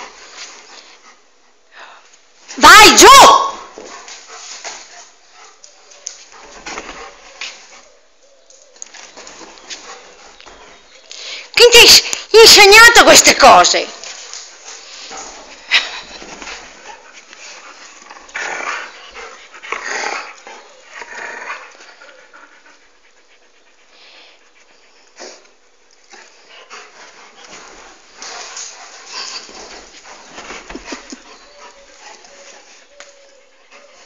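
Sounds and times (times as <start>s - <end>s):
dog panting: 3.9s - 8.0s, 9.2s - 11.5s, 13.7s - 34.0s.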